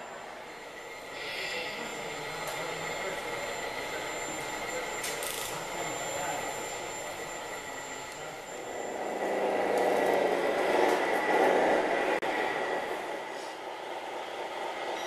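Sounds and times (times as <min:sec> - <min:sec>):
faint thin whine: 0:00.0 - 0:10.4.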